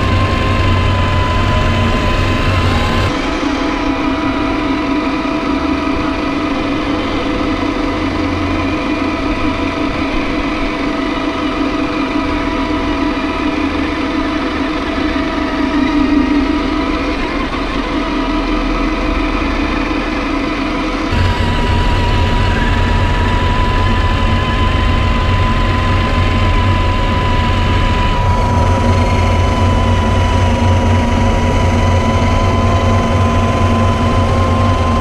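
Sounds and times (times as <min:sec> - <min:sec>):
motor humming: 0:21.1 - 0:35.0.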